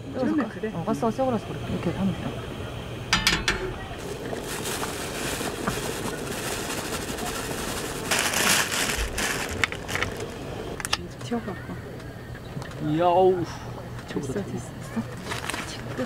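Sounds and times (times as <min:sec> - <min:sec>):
gas burner hissing: 0:00.0 - 0:16.0
plastic bag crinkling: 0:03.8 - 0:10.9, 0:15.1 - 0:16.0.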